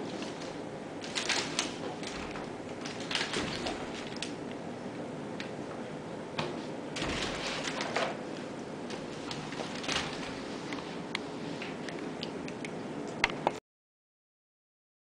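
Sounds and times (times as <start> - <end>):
kitten playing with wicker basket: 0.0 - 4.4.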